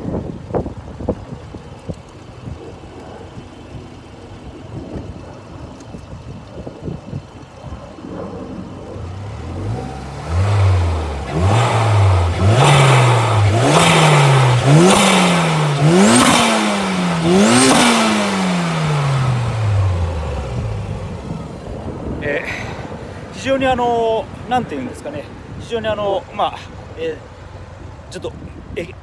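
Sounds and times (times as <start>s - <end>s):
turbocharged engine intake revving: 0.2s - 23.0s.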